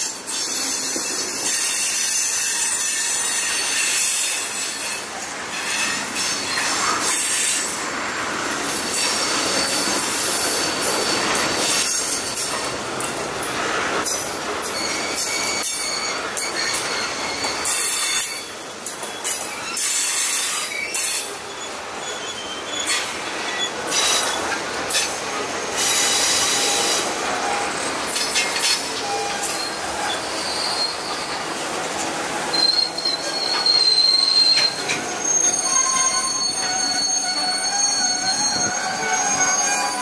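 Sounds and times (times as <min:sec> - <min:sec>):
freight train wheels rumbling and rattling: 0:00.0 - 0:40.0
high-pitched wheel squeal: 0:14.8 - 0:18.5, 0:28.9 - 0:31.6, 0:32.4 - 0:40.0.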